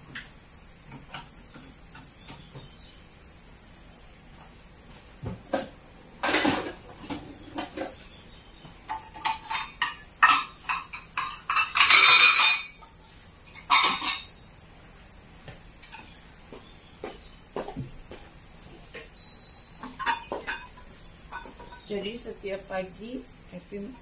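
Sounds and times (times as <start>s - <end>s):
cutlery and metal pot clinking: 6.2s - 8.0s, 8.9s - 12.8s, 13.6s - 14.3s, 19.8s - 21.9s.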